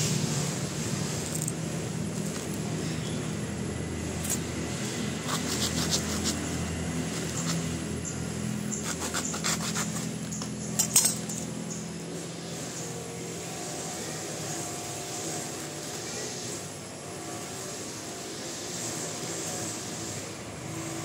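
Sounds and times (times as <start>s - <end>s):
knife scraping coconut husk: 4.2s - 7.9s, 8.7s - 11.2s.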